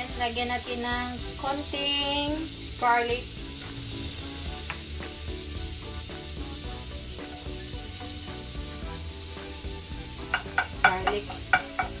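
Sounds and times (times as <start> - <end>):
garlic sizzling in butter: 0.0 - 12.0
wooden spatula stirring: 10.1 - 12.0.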